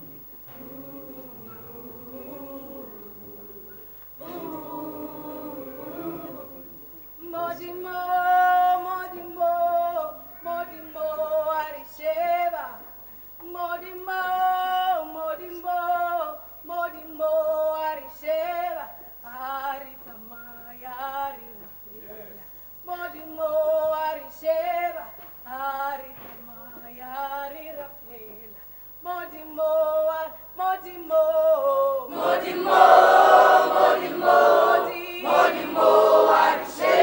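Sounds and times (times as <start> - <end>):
church choir singing: 0.0 - 8.9, 32.0 - 37.0
solo voice singing: 0.0 - 22.1.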